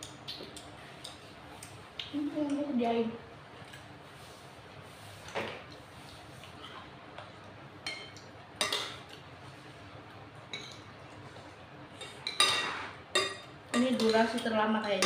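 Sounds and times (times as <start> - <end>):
spoons clinking on ceramic bowls: 7.8 - 9.0, 12.0 - 15.0.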